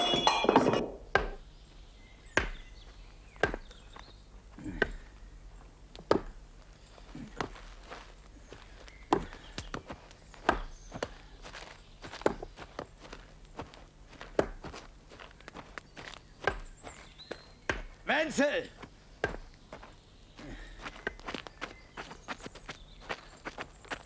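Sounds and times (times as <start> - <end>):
wooden knocks and thuds of logs: 0.1 - 1.4, 2.3 - 2.7, 3.4 - 4.0, 6.0 - 6.4, 9.0 - 12.9, 13.6 - 14.8, 15.4 - 18.1, 18.8 - 19.9, 20.9 - 21.5.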